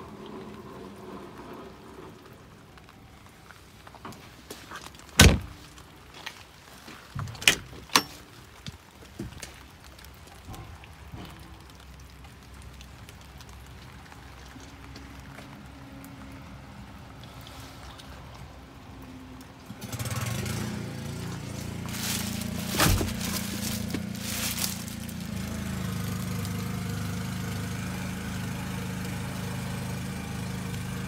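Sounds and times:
light rain patter: 0.0 - 31.0
vehicle door thunk: 5.2 - 5.6, 22.7 - 23.5.

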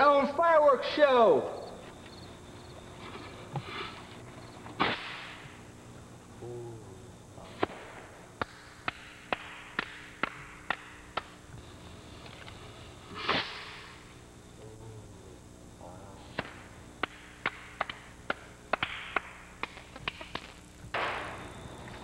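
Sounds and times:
firework bang: 4.8 - 5.5, 7.6 - 8.6, 20.9 - 21.6
sharp firework cracks: 4.8 - 5.8, 7.5 - 11.5, 13.1 - 14.1, 16.3 - 22.0
rushing firework burst: 13.1 - 14.0.

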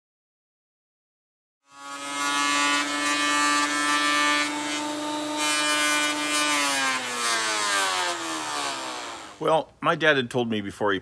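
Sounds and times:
thickness planer whining: 1.7 - 9.4
rough cutting noise: 1.7 - 9.6
motor winding down: 6.0 - 9.4.

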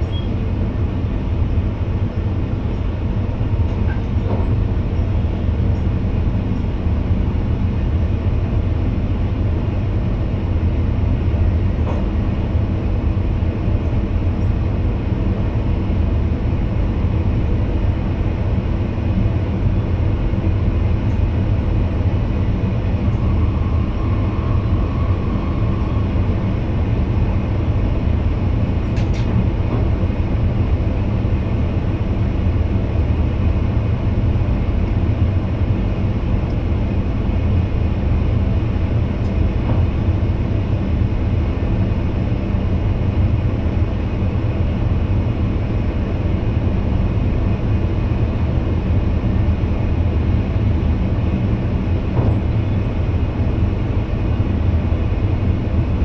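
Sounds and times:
train running rumble: 0.0 - 56.0
faint whine: 21.1 - 28.9.

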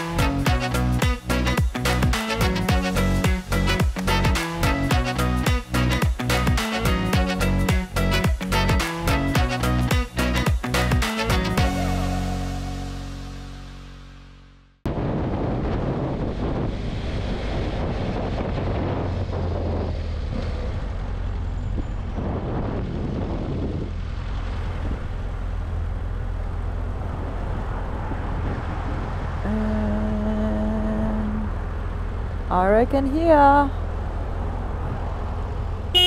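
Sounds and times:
motorcycle engine running: 0.0 - 12.0
road and wind noise: 0.0 - 36.0.

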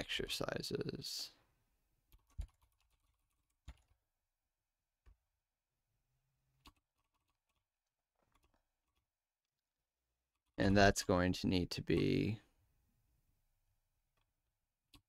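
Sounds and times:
computer keyboard keystrokes: 2.1 - 4.0.

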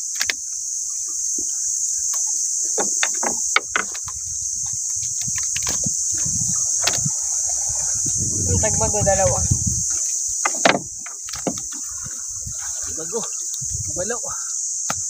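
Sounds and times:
insects droning: 0.0 - 15.0
water splashes: 2.7 - 14.1
knocks on boat: 2.8 - 4.1, 10.4 - 11.6.

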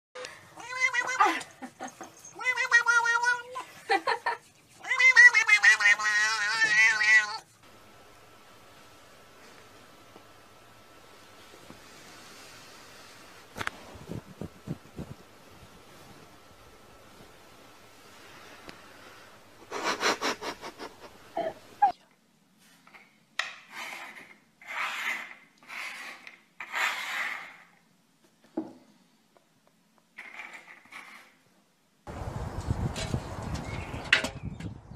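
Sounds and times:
cat yowling: 0.6 - 1.5, 2.2 - 3.6, 4.8 - 7.5.

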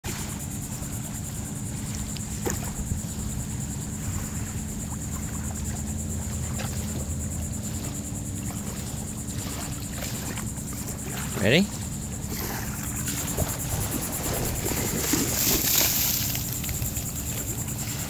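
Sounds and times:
low motor hum: 0.1 - 18.0
faint ticks: 1.8 - 3.4, 15.4 - 17.9.

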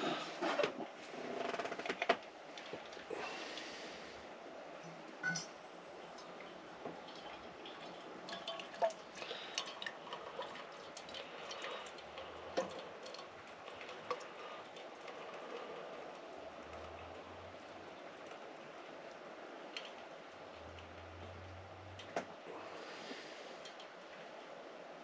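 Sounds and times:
metal cookware clinking: 5.2 - 5.6
water pouring from kettle: 5.2 - 21.4.

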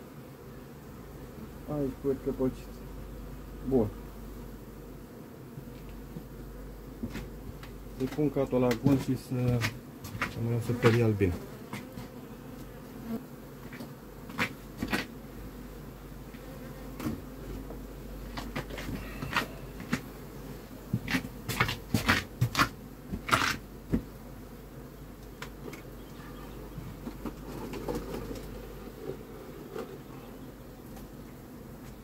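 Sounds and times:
bees buzzing: 0.0 - 32.0
wooden hive boxes clacking: 7.0 - 12.2, 16.4 - 20.1, 20.9 - 24.1, 25.2 - 31.2.

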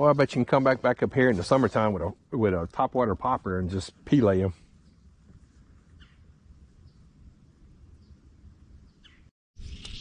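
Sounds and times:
faint high bird chirps: 7.9 - 10.0.

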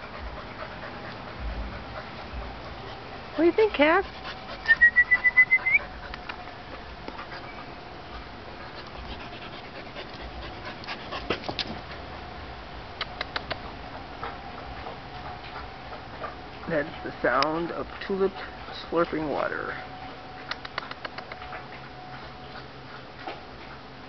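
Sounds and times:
dog whining: 4.5 - 6.5.

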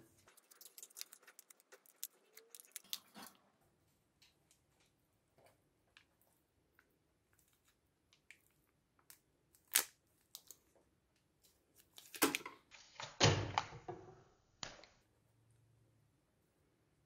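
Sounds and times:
plastic and foil crinkling: 0.1 - 3.4.

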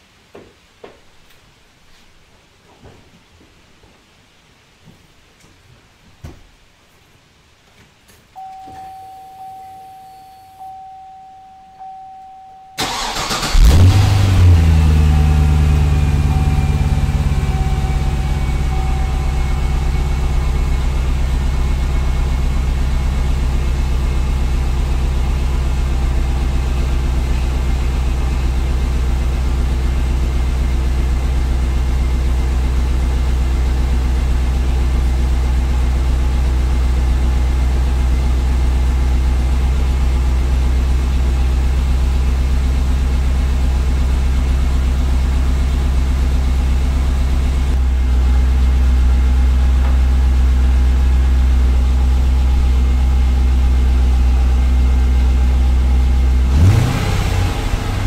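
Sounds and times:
car chime: 8.4 - 13.4, 15.0 - 20.3
car engine starting and idling: 12.8 - 58.0.

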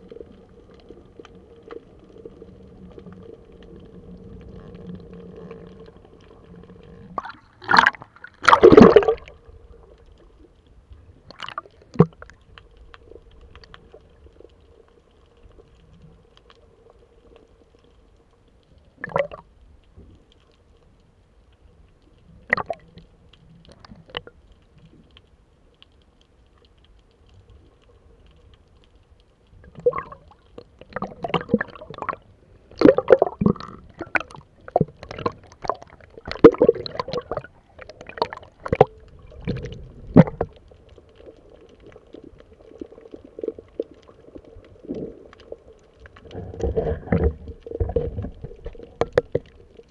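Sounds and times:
faint steady hum: 0.0 - 49.9
underwater knocks and gurgles: 0.0 - 49.9
water sloshing: 6.8 - 9.6.

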